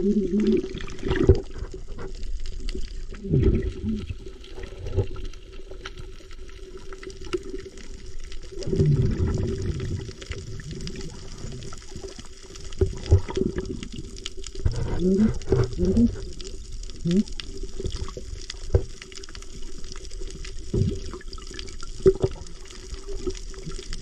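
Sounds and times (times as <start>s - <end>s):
water sloshing and bubbling: 0.0s - 24.0s.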